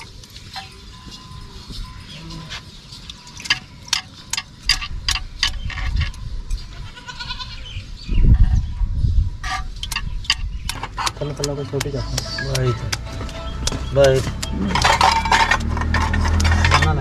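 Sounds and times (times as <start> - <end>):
wavering bleat-like animal call: 6.7 - 7.7
sharp clicks against clay pot: 9.8 - 16.8.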